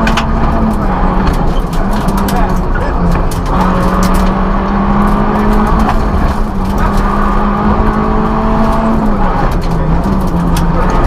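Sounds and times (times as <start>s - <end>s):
clicks and rattles: 0.0s - 8.0s
rally car engine at high revs: 0.0s - 11.0s.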